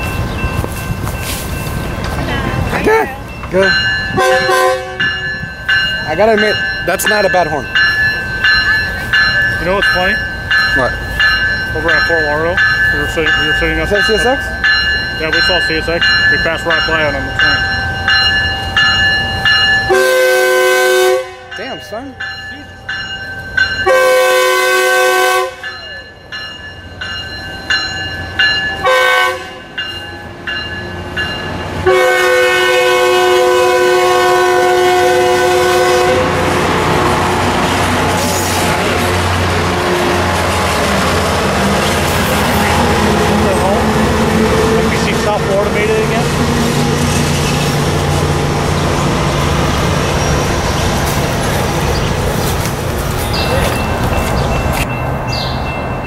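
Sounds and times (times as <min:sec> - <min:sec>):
train rumbling past: 0:00.0 - 0:56.0
train horn blast: 0:04.2 - 0:05.2, 0:19.9 - 0:21.6, 0:23.8 - 0:25.7, 0:28.8 - 0:29.6, 0:31.8 - 0:45.2.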